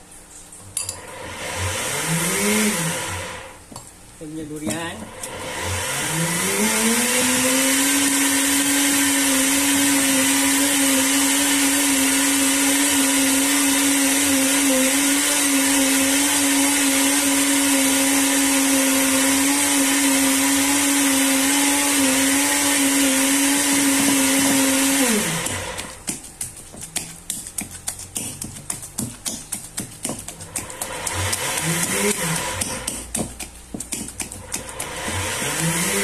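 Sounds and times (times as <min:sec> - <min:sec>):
electric blender running: 0:00.9 - 0:03.6, 0:04.7 - 0:26.0, 0:30.4 - 0:33.1, 0:34.2 - 0:36.0.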